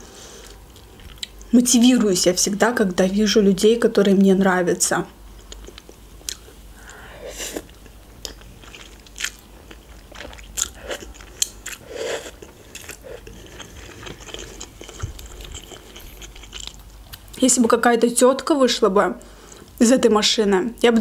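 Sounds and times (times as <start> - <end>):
person chewing noodles: 5.4 - 17.4.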